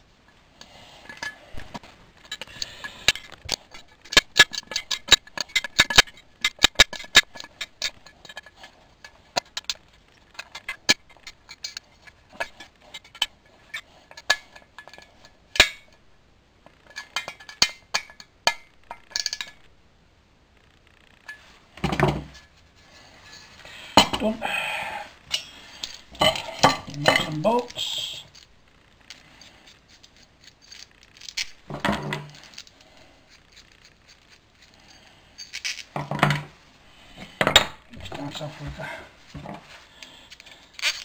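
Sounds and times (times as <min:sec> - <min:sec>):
small metal parts clinking: 0:02.2 - 0:16.0, 0:16.8 - 0:19.7, 0:25.3 - 0:28.5, 0:29.1 - 0:36.5, 0:39.3 - 0:41.0.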